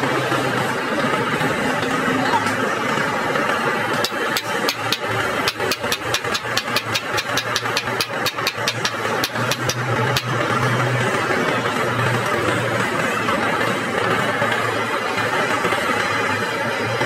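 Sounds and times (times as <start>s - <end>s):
engine-like hum: 0.0s - 17.0s
hammer tapping metal pipe: 4.0s - 10.4s.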